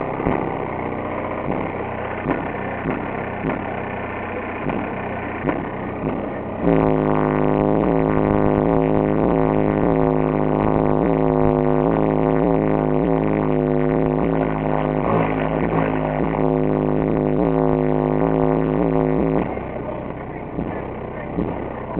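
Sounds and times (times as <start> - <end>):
car engine idling: 0.0 - 21.9
loud music with heavy bass: 0.0 - 21.9.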